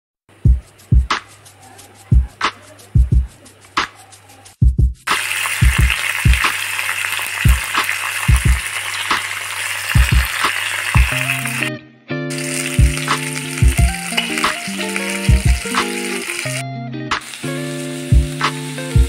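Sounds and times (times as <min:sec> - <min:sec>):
background music with drum beat: 0:00.3 - 0:11.7, 0:12.3 - 0:19.0
fish sizzling in hot oil: 0:05.1 - 0:11.7, 0:12.3 - 0:16.6, 0:17.2 - 0:19.0.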